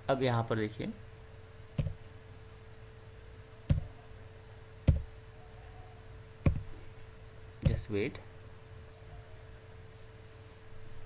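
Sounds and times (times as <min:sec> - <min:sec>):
faint steady hum: 0:00.0 - 0:11.0
sharp knocking clicks: 0:04.9 - 0:05.1.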